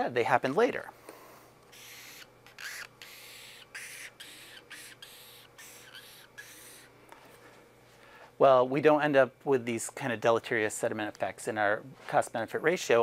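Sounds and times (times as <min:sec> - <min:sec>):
marker squeaking on paper: 0:01.7 - 0:06.9.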